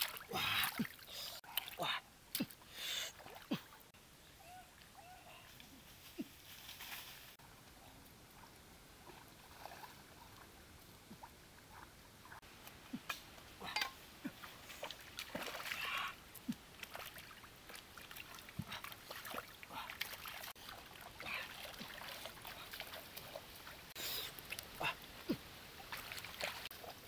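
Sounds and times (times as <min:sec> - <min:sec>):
water splashing and dripping: 0:00.0 - 0:03.9, 0:07.6 - 0:27.0.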